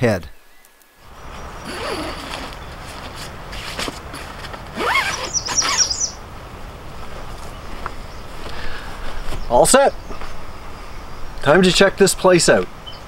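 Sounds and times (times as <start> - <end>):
tent pole squeaking: 1.2 - 6.2.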